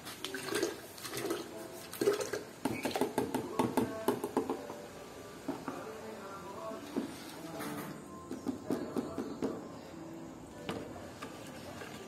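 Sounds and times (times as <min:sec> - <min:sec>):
salt pouring into water jug: 0:00.0 - 0:03.0.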